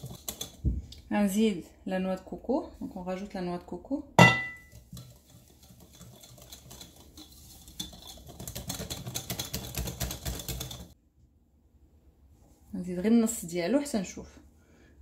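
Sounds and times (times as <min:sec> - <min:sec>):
whisk ticking against glass bowl: 0:00.0 - 0:00.6, 0:04.2 - 0:11.0.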